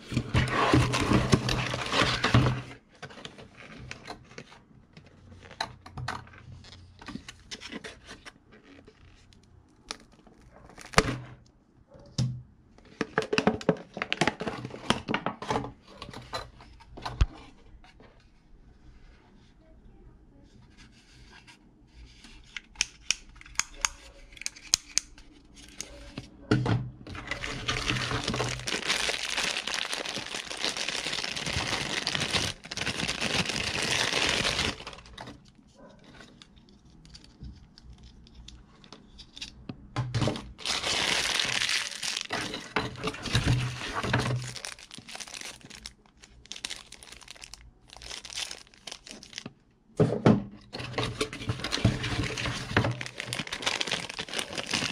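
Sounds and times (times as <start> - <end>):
plastic bag crinkling and tearing: 0.2 - 2.6, 9.8 - 11.2, 27.2 - 35.3, 40.4 - 49.5, 51.0 - 54.9.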